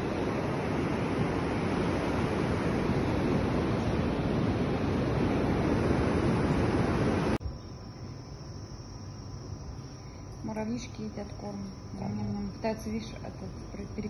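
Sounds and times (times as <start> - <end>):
surf washing onto beach: 0.0 - 7.4
wind blowing across microphone: 0.0 - 7.4.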